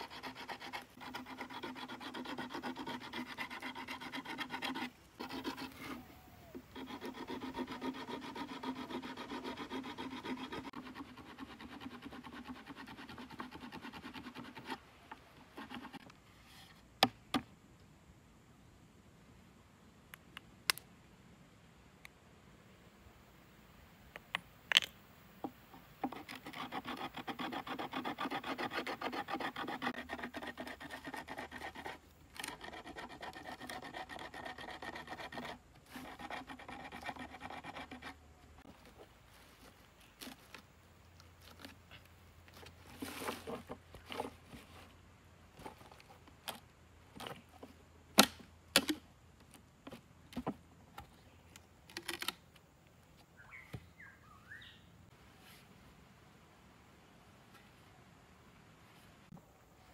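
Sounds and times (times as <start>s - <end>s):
stone sawing bamboo: 0.0s - 14.8s, 15.5s - 16.1s, 25.8s - 38.7s.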